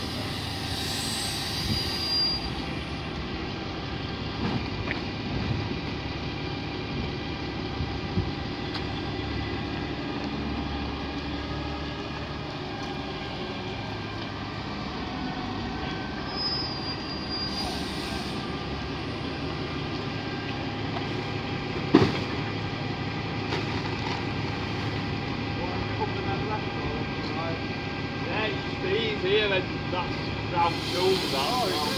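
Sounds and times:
garbage truck machinery din: 20.8s - 26.2s.

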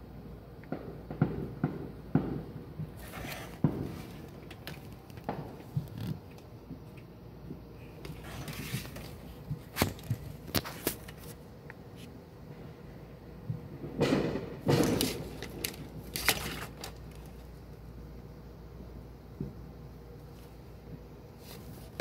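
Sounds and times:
fireworks blasts: 0.7s - 6.9s, 12.5s - 16.1s
fireworks cracking: 0.7s - 6.9s, 13.5s - 17.4s.

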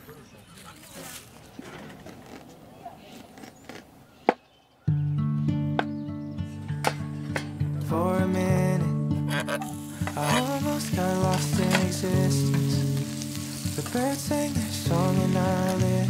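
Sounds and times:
background music: 4.9s - 16.0s
meat sizzling in a frying pan: 9.5s - 16.0s.

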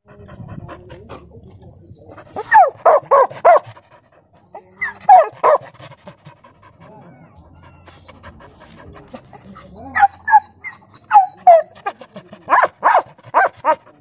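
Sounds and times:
dog barking: 2.4s - 3.8s, 4.8s - 5.8s, 9.8s - 13.9s.

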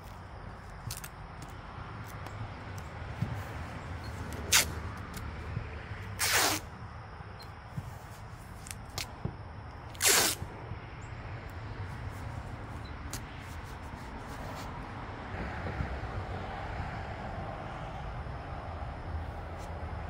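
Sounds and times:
masking tape ripping off roll: 0.8s - 1.1s, 4.3s - 5.2s, 6.2s - 6.7s, 9.9s - 10.4s.

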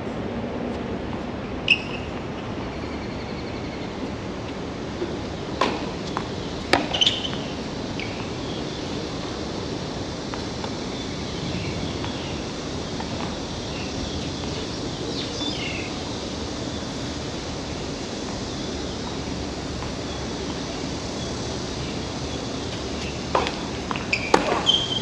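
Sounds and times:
outdoor background noise: 0.0s - 25.0s
tennis ball racket hits: 23.3s - 25.0s.

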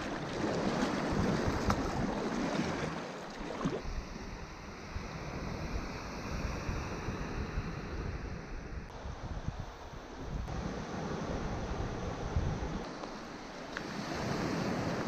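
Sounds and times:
paddle strokes splashing: 0.0s - 3.8s
water washing against hull: 0.0s - 3.8s
wind buffeting microphone: 3.8s - 12.9s.

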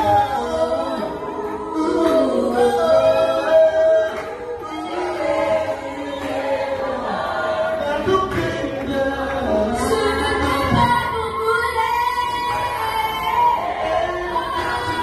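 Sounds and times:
choir singing: 0.0s - 15.0s.

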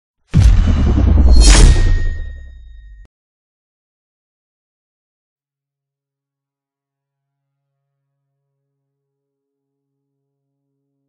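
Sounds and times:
deep boom: 0.3s - 3.0s.

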